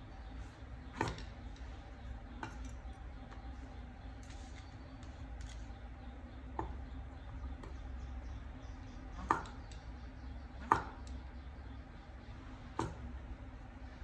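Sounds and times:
cleaver chopping on wooden board: 10.6s - 11.1s.

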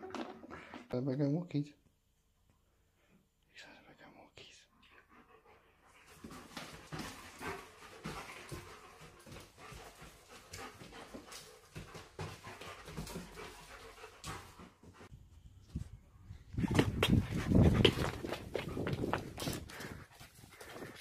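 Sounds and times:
dog panting: 4.8s - 15.1s, 17.0s - 21.0s.

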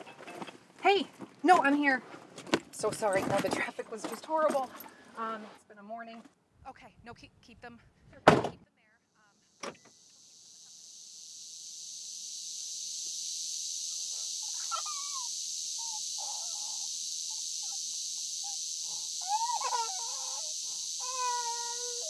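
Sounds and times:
steady high hiss: 9.2s - 22.0s.

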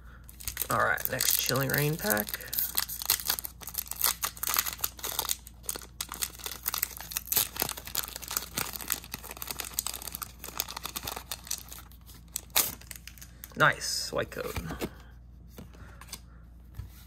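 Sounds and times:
foil wrapper crinkling and tearing: 0.4s - 13.7s.

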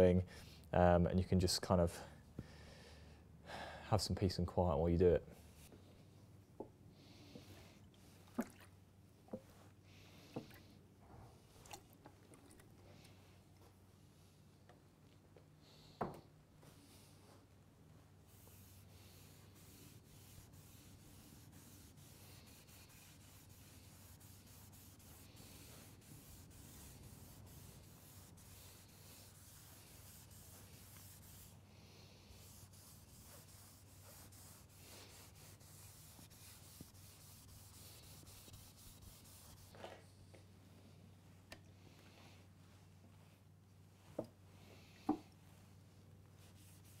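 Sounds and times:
cloth rag rubbing wood: 18.3s - 40.0s, 46.4s - 47.0s.

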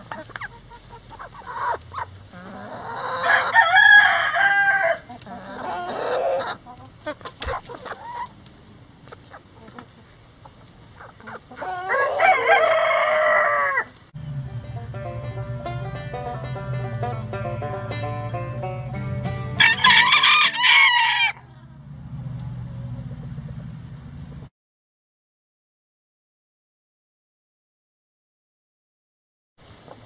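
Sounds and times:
hens clucking: 0.0s - 21.8s
rooster crowing: 2.4s - 6.6s, 11.6s - 13.9s, 19.5s - 21.6s.

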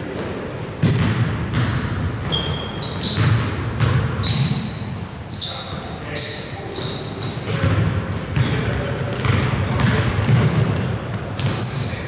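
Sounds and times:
sneakers squeaking on gym floor: 0.0s - 12.0s
basketball dribbling thuds: 0.8s - 4.7s, 6.9s - 12.0s.

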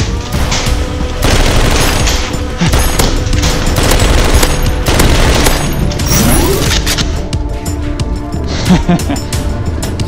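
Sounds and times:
background music: 0.0s - 10.0s
rapid gunfire: 0.4s - 6.0s.

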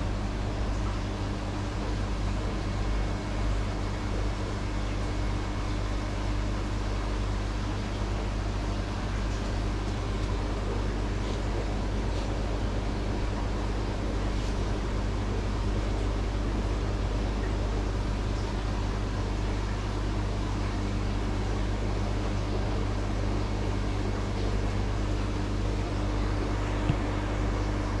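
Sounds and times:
aquarium pumps humming and hissing: 0.0s - 28.0s.

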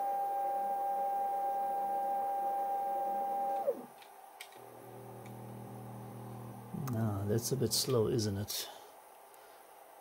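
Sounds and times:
stepper motor whine: 0.0s - 3.9s, 4.6s - 6.8s.

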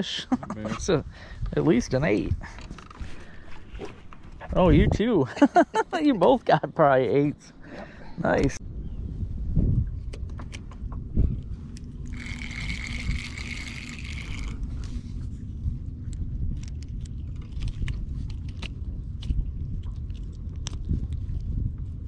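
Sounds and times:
steady low rumble: 0.0s - 22.0s
small clicks and scrapes: 11.7s - 15.1s, 16.1s - 21.5s
fishing reel whirring: 12.0s - 14.9s.

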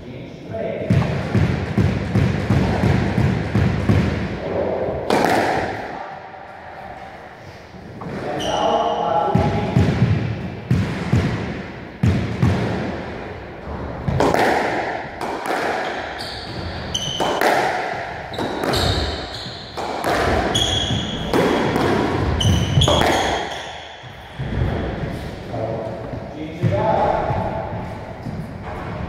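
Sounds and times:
squash ball hit by rackets: 0.8s - 4.4s, 5.0s - 5.9s, 9.3s - 25.3s
shoes squeaking on wooden floor: 8.0s - 8.9s, 15.8s - 17.5s, 18.1s - 25.4s.

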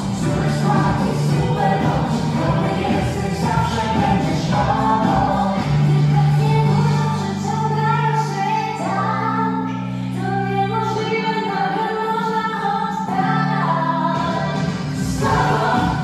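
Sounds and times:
beat: 0.0s - 7.0s, 14.2s - 16.0s
held chords: 0.0s - 7.8s
woman singing: 0.0s - 16.0s.

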